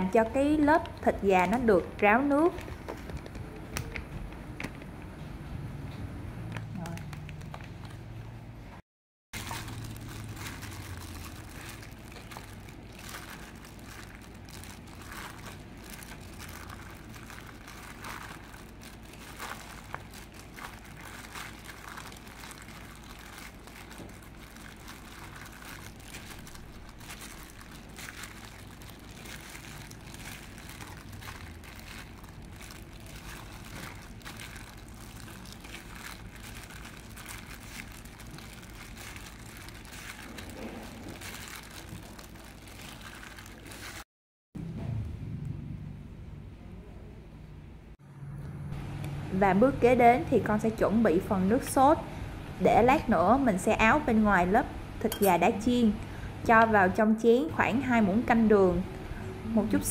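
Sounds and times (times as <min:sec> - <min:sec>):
flour rustling and squishing: 0:09.4 - 0:44.1
faint low hum: 0:44.6 - 0:59.9.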